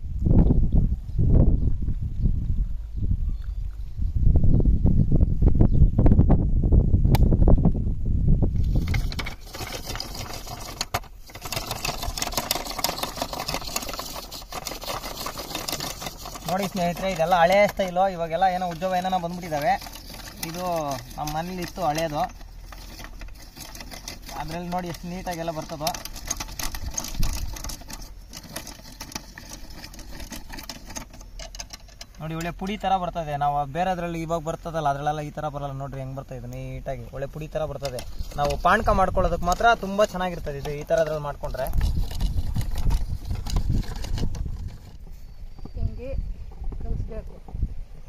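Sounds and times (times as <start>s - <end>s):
sharp click: 7.1s - 7.4s
coconut scraper rasping: 8.6s - 33.2s, 37.2s - 45.8s.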